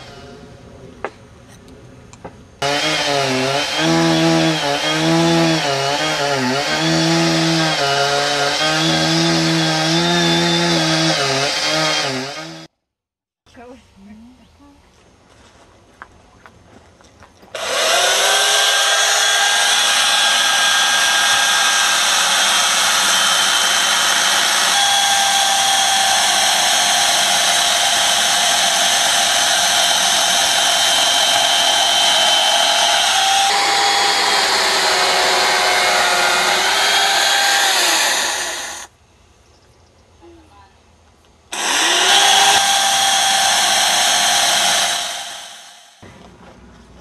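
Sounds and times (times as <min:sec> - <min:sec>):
chainsaw cutting log: 0:02.6 - 0:12.7, 0:17.5 - 0:38.9, 0:41.5 - 0:46.0.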